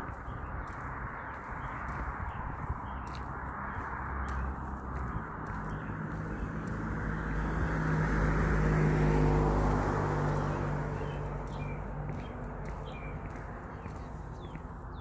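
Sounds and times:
car passing by: 0:03.0 - 0:14.6.

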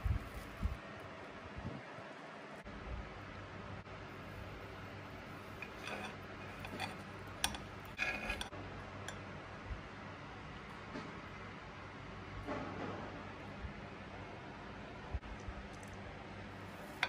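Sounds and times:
faint steady hiss and hum: 0:00.0 - 0:12.5.

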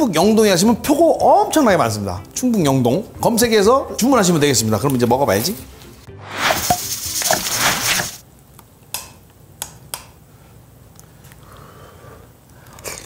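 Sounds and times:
noisy transition sound effect: 0:06.1 - 0:08.2.

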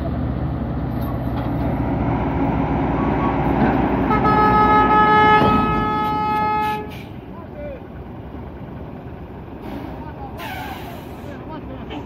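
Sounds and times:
truck engine rumbling: 0:00.0 - 0:12.0
vehicle horn blast: 0:04.1 - 0:07.1.

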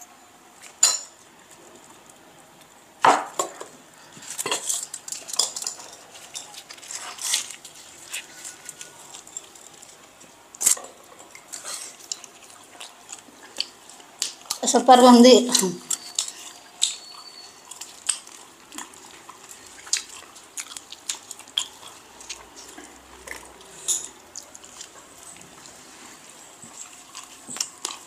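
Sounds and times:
chewing: 0:04.0 - 0:14.7, 0:15.5 - 0:28.0
bread tearing: 0:06.1 - 0:10.8.

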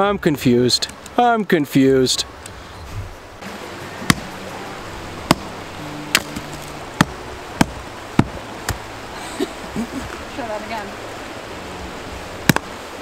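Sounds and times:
axe chopping log: 0:04.0 - 0:04.4, 0:05.2 - 0:05.5, 0:06.1 - 0:08.8, 0:12.4 - 0:12.8.

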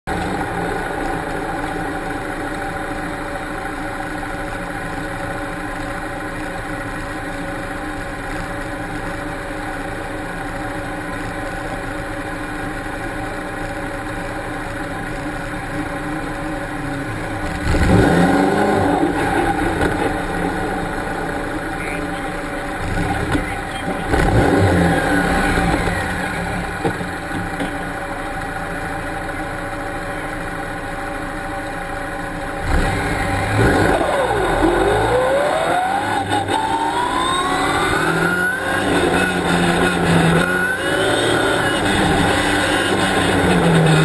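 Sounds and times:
car engine idling: 0:00.0 - 0:44.0
engine revving: 0:14.9 - 0:27.9, 0:32.5 - 0:44.0.

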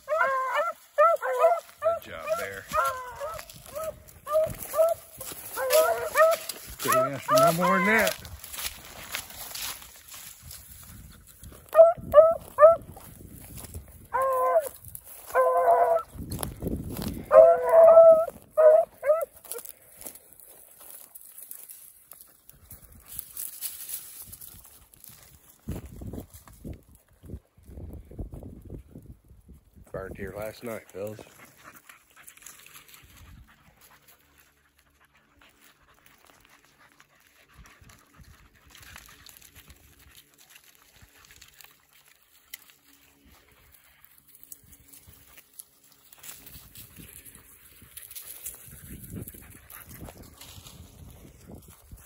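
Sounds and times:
hounds baying: 0:00.0 - 0:08.2, 0:11.6 - 0:13.0, 0:14.1 - 0:16.1, 0:17.0 - 0:19.7
dogs panting and sniffing: 0:00.0 - 0:25.7, 0:30.7 - 0:52.0.

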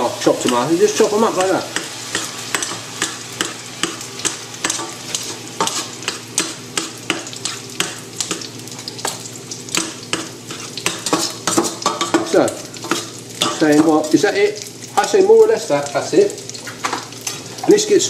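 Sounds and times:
vegetables sizzling in oil: 0:00.0 - 0:18.0
cutlery scraping metal pan: 0:03.8 - 0:07.9, 0:09.8 - 0:12.2.

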